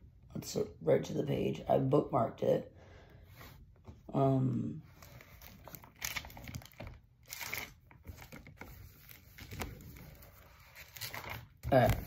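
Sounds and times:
paper pages rustling: 5.0 - 12.0.

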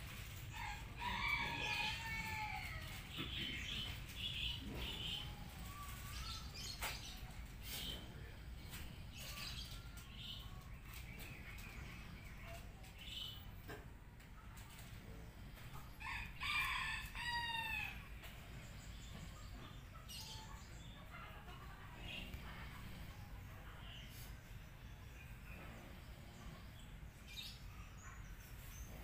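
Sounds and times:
birds chirping and calling: 1.2 - 13.8.

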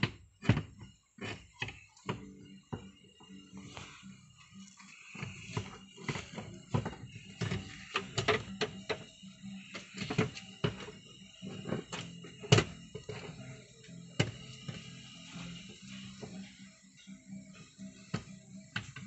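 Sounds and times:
background music with sustained tones: 0.0 - 19.0.

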